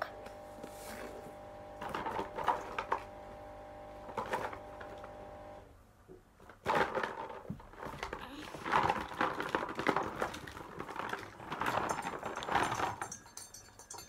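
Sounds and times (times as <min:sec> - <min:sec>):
steady hum: 0:00.0 - 0:05.7
plastic toys clattering: 0:06.4 - 0:14.0.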